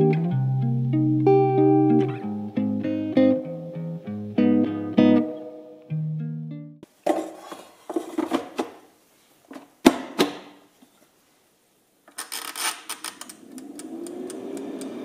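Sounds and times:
kitchenware clicks and knocks: 0:07.0 - 0:08.8.

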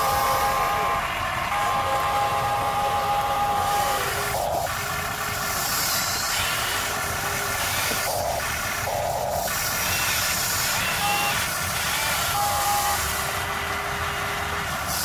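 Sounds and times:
electric motors whining: 0:00.0 - 0:15.0
steady hiss: 0:01.9 - 0:13.4.

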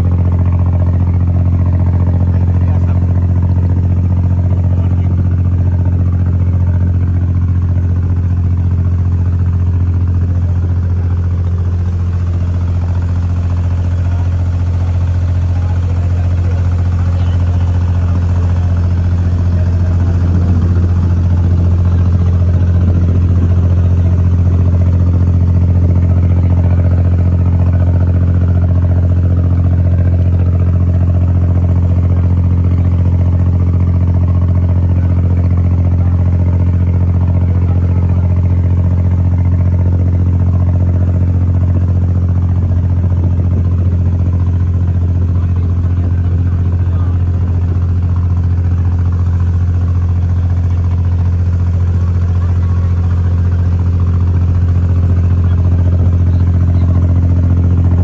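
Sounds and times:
diesel boat engine running: 0:00.0 - 0:58.0.

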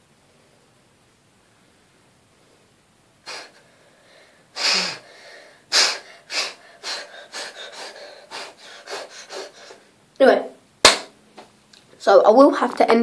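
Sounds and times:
person huffing through the nose: 0:03.2 - 0:03.7, 0:04.6 - 0:09.9.

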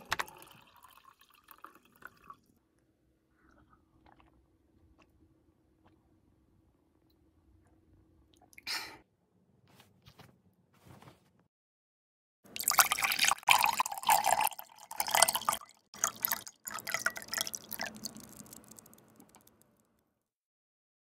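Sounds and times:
liquid sloshing in a container: 0:12.5 - 0:19.5.

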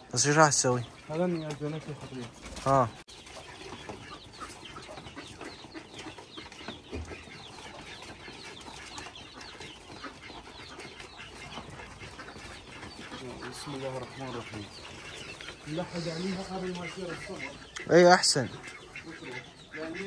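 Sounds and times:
chickens chirping: 0:00.0 - 0:20.0
chickens clucking: 0:00.0 - 0:20.0.

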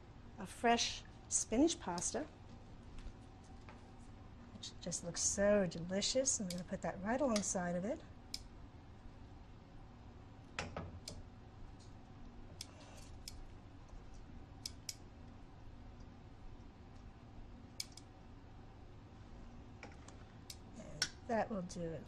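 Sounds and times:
metal tongs clicking on colander: 0:06.4 - 0:06.7.

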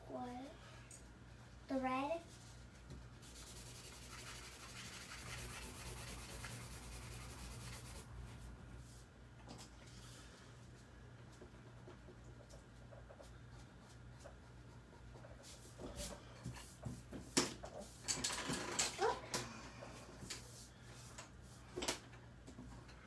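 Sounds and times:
drawing strokes on paper: 0:02.4 - 0:08.4.

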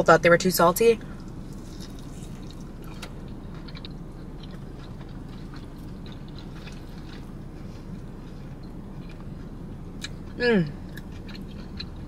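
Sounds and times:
steady low hum: 0:00.0 - 0:12.0
person chewing: 0:01.0 - 0:12.0.

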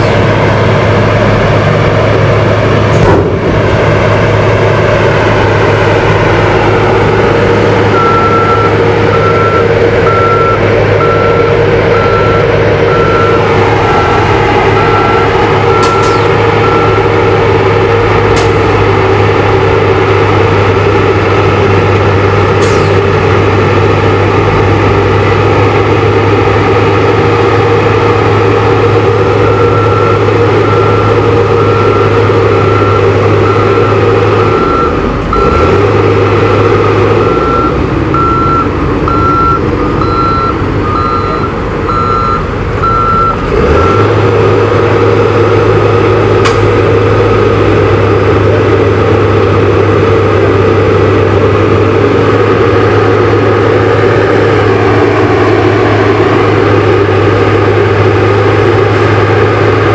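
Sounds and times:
diesel truck engine running: 0:00.0 - 0:59.9
reversing alarm beeping: 0:06.1 - 0:18.1, 0:28.8 - 0:35.8, 0:36.6 - 0:44.2.

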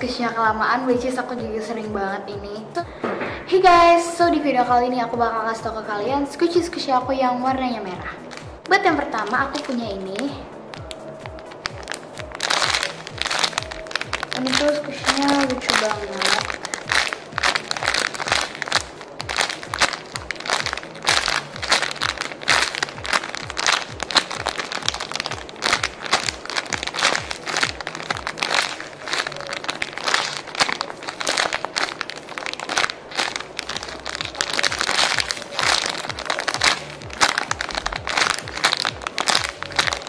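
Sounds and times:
background music: 0:00.0 - 0:40.0
plastic packaging crinkling: 0:08.3 - 0:40.0.

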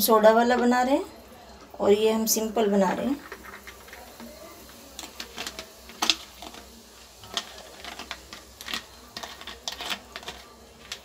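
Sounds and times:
soda water fizzing over ice: 0:00.1 - 0:11.0
ice clicks and crackles: 0:03.2 - 0:11.0.

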